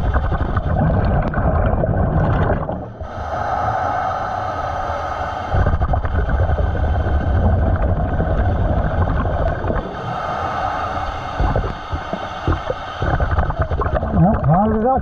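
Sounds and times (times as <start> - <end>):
exhaled bubbles rumbling underwater: 0.0 - 15.0
regulator in-breath hiss: 3.0 - 14.0.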